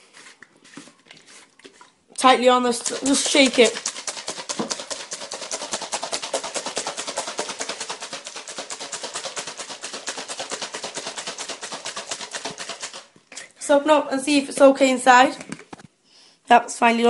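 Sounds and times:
plastic tub rattling when shaken: 2.2 - 13.2.

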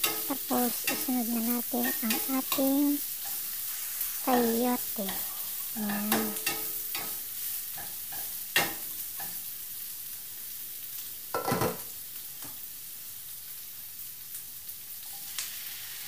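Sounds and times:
utensil stirring and knocking on pan: 0.0 - 2.6, 4.3 - 9.4
aromatics sizzling in a frying pan: 0.0 - 16.0.

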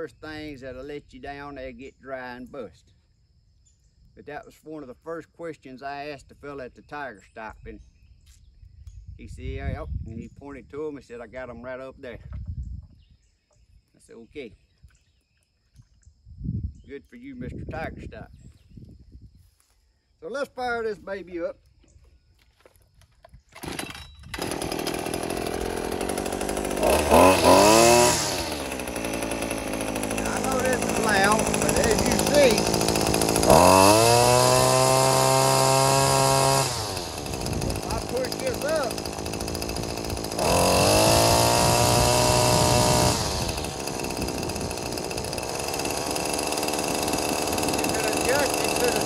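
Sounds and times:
string trimmer engine starting and revving: 23.4 - 49.0.

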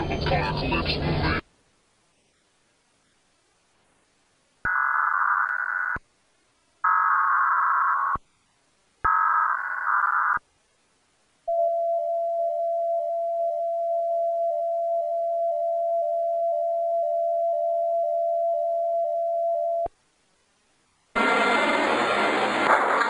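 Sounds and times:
digital data bursts: 4.6 - 6.0, 6.8 - 8.2, 9.0 - 10.4
steady attention tone: 6.8 - 8.4, 11.5 - 19.9.

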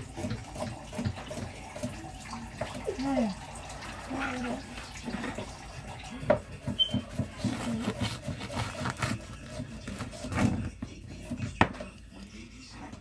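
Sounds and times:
knife sawing through baked crust: 0.0 - 1.8, 6.5 - 11.6.

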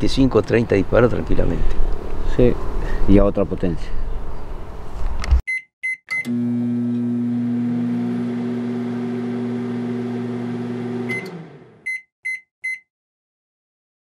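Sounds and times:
short electronic beeps: 5.5 - 6.3, 11.9 - 12.9.

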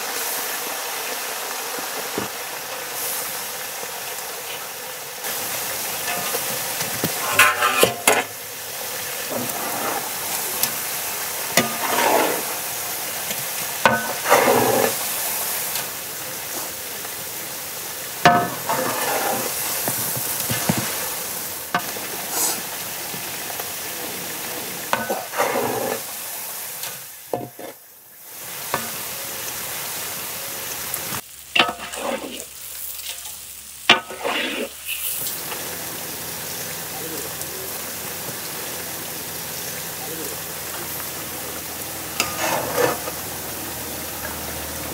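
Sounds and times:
oil sizzling in a pan: 0.0 - 44.9
metal ladle scraping a pan: 5.3 - 15.9, 18.2 - 22.6, 24.9 - 26.2, 26.8 - 27.8, 31.6 - 35.4, 42.1 - 43.6.

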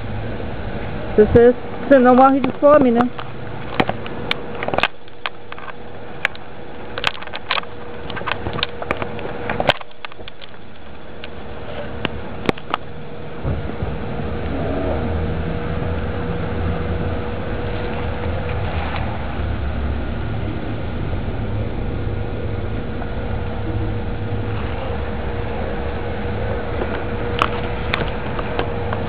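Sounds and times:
faint hum: 0.0 - 29.0
low rumble: 10.4 - 29.0.

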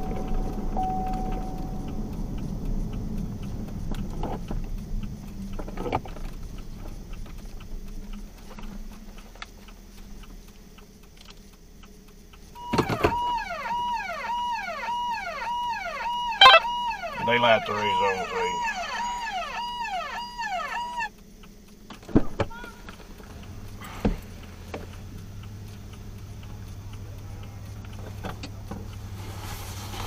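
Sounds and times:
fire truck siren: 0.0 - 2.1, 12.6 - 21.1
truck engine and road rumble: 0.0 - 30.0.

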